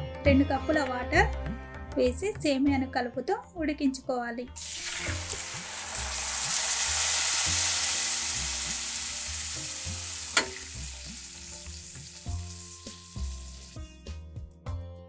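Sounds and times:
water sizzling in hot pan: 0:04.6 - 0:13.8.

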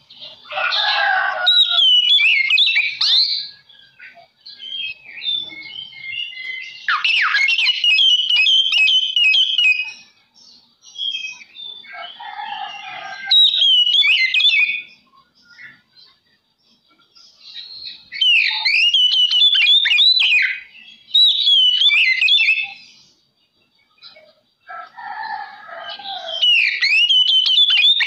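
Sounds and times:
bird singing whistled phrases: 0:01.3 - 0:10.1, 0:10.8 - 0:15.9, 0:17.5 - 0:23.0, 0:25.8 - 0:28.0.

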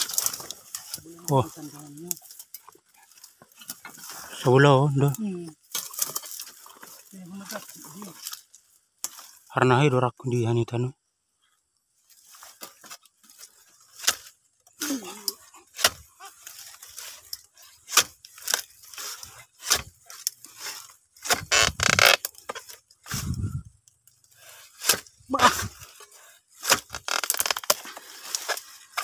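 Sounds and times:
crunching rustle: 0:00.0 - 0:09.6, 0:11.9 - 0:29.0
chisel chopping into palm stalk: 0:15.7 - 0:16.1, 0:17.9 - 0:22.8, 0:26.6 - 0:29.0.

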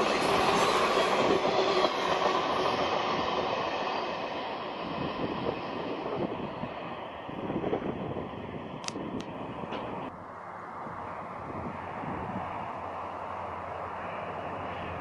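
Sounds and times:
train wheels clattering on rails: 0:00.0 - 0:06.2
train rumble: 0:00.0 - 0:15.0.

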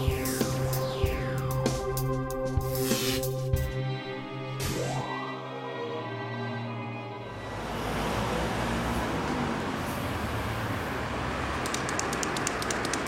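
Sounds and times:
traffic noise with low rumble: 0:07.2 - 0:13.0
rapid rattling clicks: 0:11.6 - 0:13.0.

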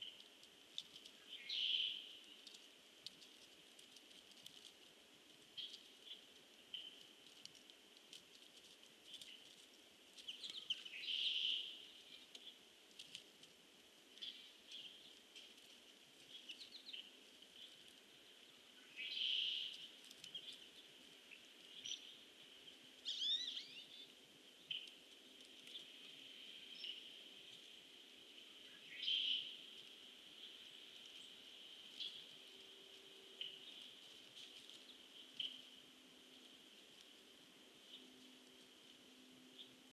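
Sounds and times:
high-pitched background hiss: 0:00.0 - 0:39.9.

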